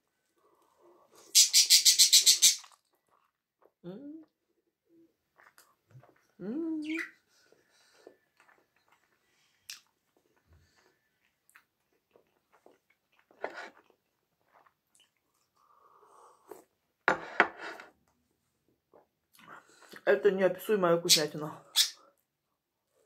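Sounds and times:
lip smacks: 0:02.4 - 0:03.7, 0:09.7 - 0:10.0
quiet chewing: 0:02.6 - 0:06.4, 0:07.3 - 0:16.8.

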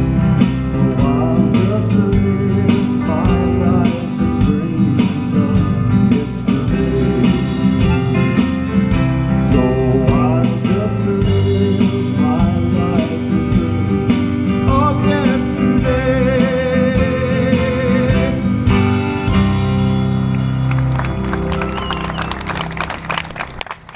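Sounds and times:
person singing: 0:00.0 - 0:08.4, 0:09.3 - 0:18.8
drums: 0:00.0 - 0:23.1
acoustic guitar: 0:00.0 - 0:23.6
upright bass: 0:00.0 - 0:23.9.

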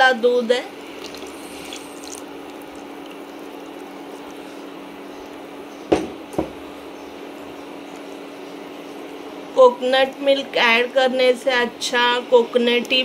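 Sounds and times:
steady low hum: 0:00.0 - 0:13.0
wet squishing of stirring: 0:00.8 - 0:05.5
sharp knocks: 0:05.9 - 0:06.6.

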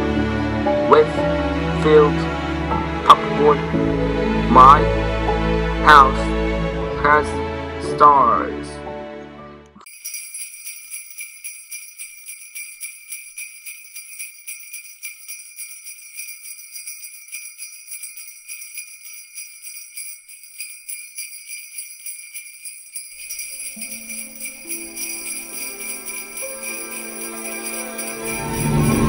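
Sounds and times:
jingle bells shaken: 0:09.8 - 0:29.0.

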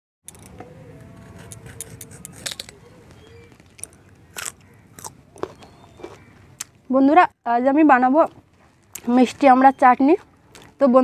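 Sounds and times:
blade scraping fruit skin: 0:01.1 - 0:02.8.

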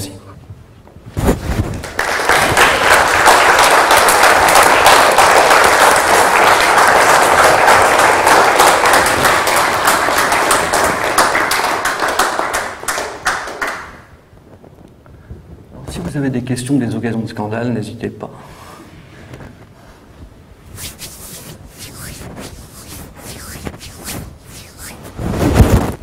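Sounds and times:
audience applauding: 0:01.7 - 0:14.2.

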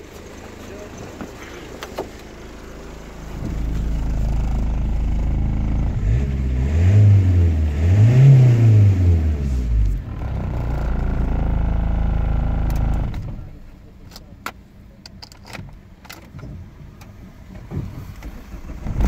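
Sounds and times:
diesel engine revving and idling: 0:00.0 - 0:15.0.

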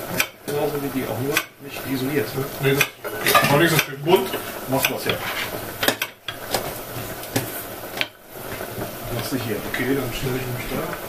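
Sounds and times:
metal bowls clattering on wood: 0:02.8 - 0:06.8.

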